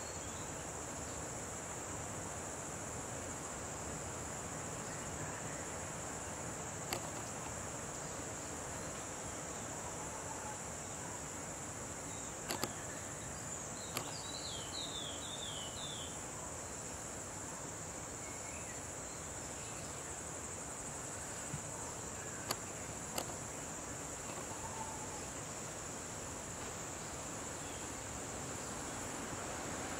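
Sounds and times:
high-pitched insect trill: 0.0s - 29.9s
steady hiss: 0.0s - 29.9s
sharp clicks: 6.9s - 7.3s, 12.4s - 12.8s, 13.9s - 14.2s, 22.4s - 23.4s.

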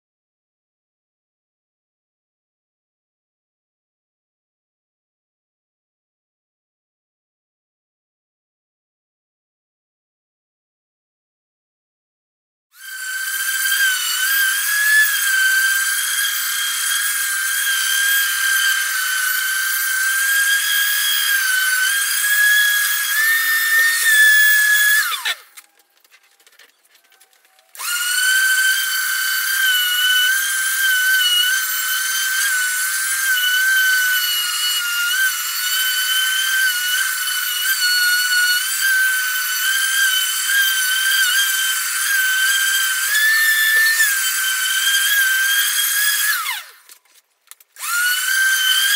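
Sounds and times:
orbital sander on wood: 12.8s - 25.5s, 27.7s - 46.8s, 47.8s - 48.9s.

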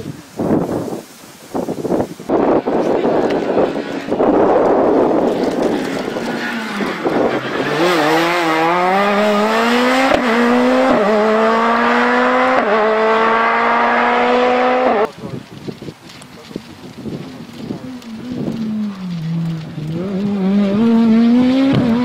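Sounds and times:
tyre and road noise: 0.0s - 22.0s
rally car engine accelerating: 2.4s - 15.1s, 17.4s - 22.0s.

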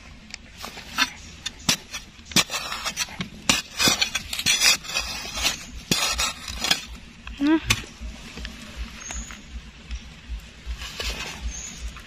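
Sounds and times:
gritty scraping in soil: 0.0s - 12.0s
digging tool knocking soil: 0.6s - 7.0s.

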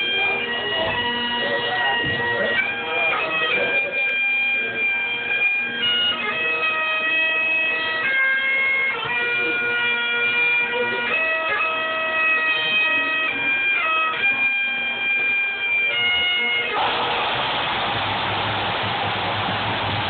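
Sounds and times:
bagpipes playing: 0.0s - 17.4s.

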